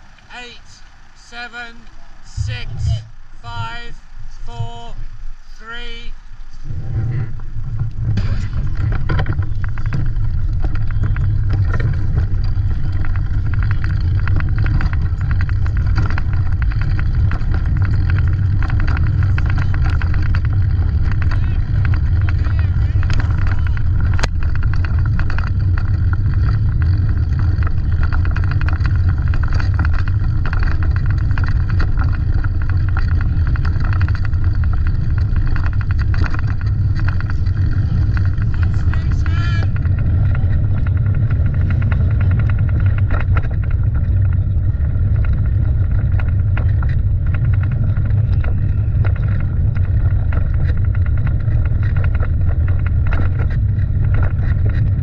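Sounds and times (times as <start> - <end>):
loud low rumble: 0.0 - 55.0
faint voices: 0.2 - 7.5, 16.8 - 24.9, 36.0 - 43.0.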